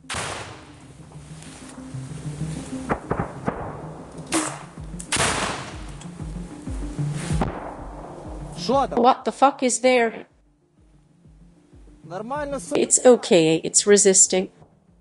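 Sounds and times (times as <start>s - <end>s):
rifle shots echoing: 0.0s - 0.9s, 2.9s - 5.9s, 7.5s - 8.2s.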